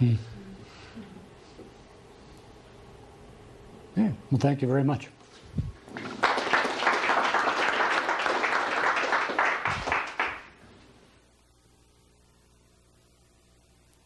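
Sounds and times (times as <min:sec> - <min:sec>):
audience applauding: 0:05.8 - 0:10.6.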